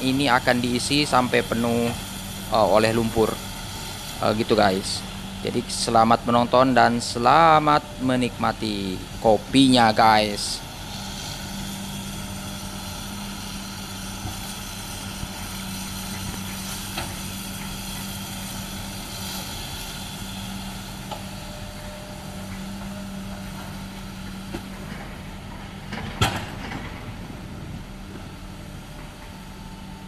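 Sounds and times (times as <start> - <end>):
excavator diesel engine running: 0.0 - 30.0.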